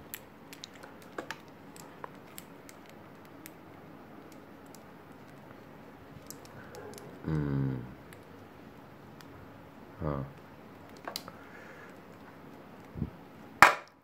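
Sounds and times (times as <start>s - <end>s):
person humming: 7.2s - 8.0s, 10.0s - 10.4s.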